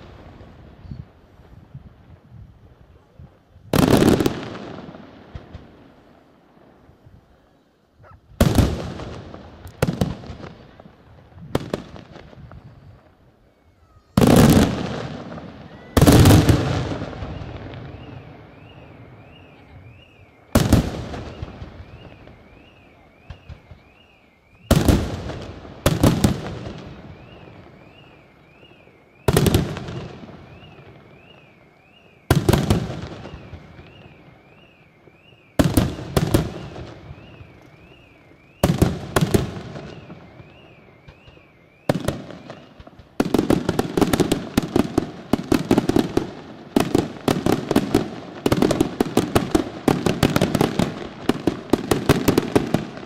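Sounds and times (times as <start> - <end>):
rapid small firework reports: 0.0 - 53.0.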